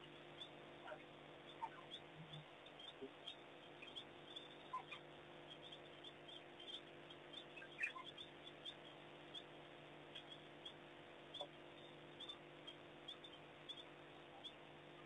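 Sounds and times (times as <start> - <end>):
steady low hum: 0.0 - 15.0
wild dogs twittering squeaks: 0.9 - 6.8, 7.4 - 8.9.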